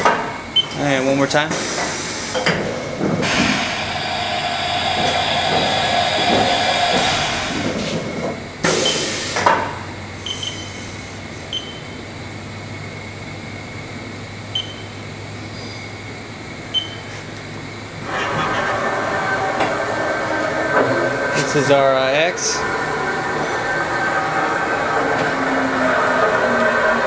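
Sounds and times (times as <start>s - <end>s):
machine humming: 0.0s - 27.0s
loud machine clunks: 1.5s - 10.6s.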